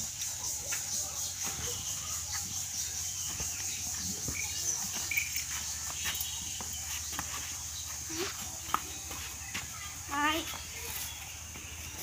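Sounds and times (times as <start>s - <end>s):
high-pitched insect chirring: 0.0s - 8.4s.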